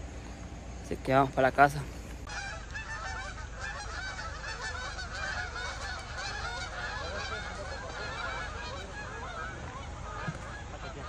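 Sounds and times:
geese honking: 0:00.0 - 0:11.0.

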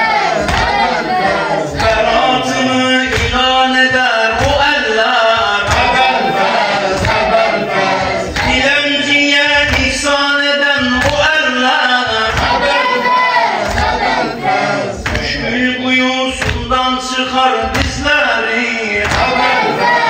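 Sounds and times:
group of voices chanting: 0:00.0 - 0:10.2, 0:10.8 - 0:16.6, 0:17.3 - 0:20.0
low thud keeping the beat: 0:03.0 - 0:11.4, 0:12.0 - 0:12.8, 0:17.6 - 0:18.2.

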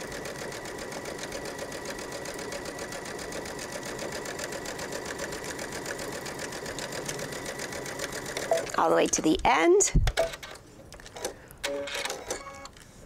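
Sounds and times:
sewing machine stitching: 0:00.0 - 0:08.8.

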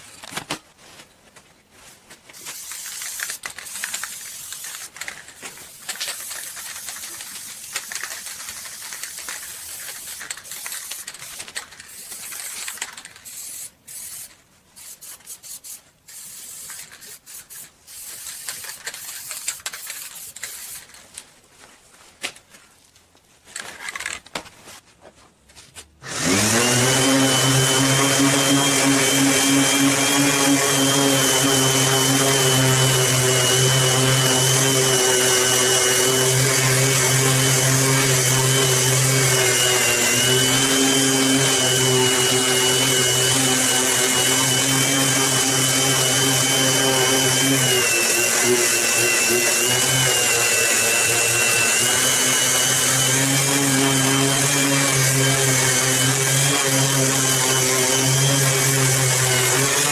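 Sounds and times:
aerosol spray can hissing: 0:02.3 - 0:21.0
orbital sander on wood: 0:26.0 - 0:59.9.

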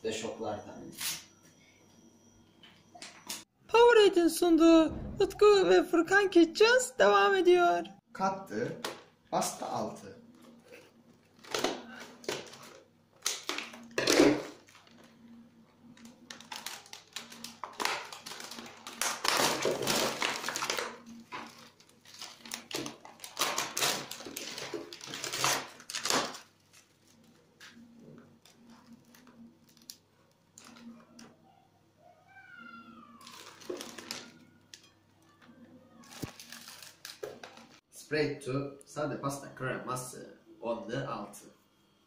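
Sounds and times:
packaging crinkling and rustling: 0:11.2 - 0:15.2, 0:15.8 - 0:31.3, 0:33.2 - 0:37.8.

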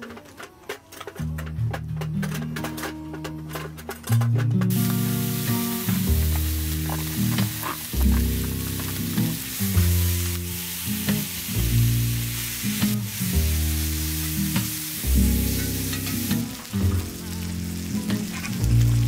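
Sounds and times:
background music of low chords: 0:01.2 - 0:19.0
meat sizzling in a skillet: 0:04.7 - 0:19.0.

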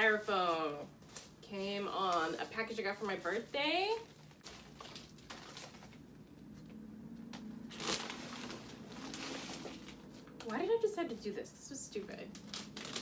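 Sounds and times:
plastic bag crinkling: 0:00.0 - 0:06.1, 0:07.7 - 0:10.6, 0:12.3 - 0:13.0.

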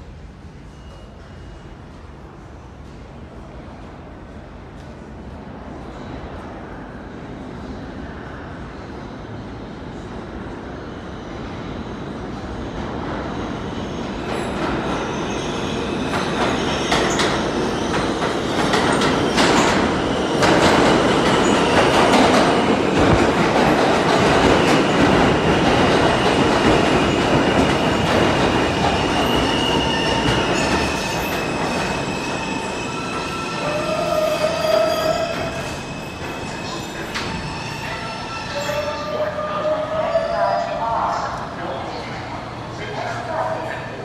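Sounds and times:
low train tone: 0:00.0 - 0:44.0
train wheels rumbling on rails: 0:12.4 - 0:39.4
high-pitched brake squeals: 0:29.4 - 0:40.6.

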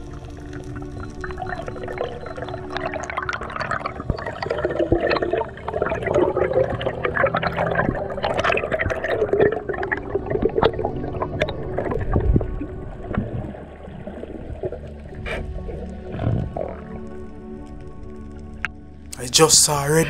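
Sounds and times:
small clicks and pops: 0:00.0 - 0:05.3
underwater bubbling and gurgling: 0:00.0 - 0:19.1.

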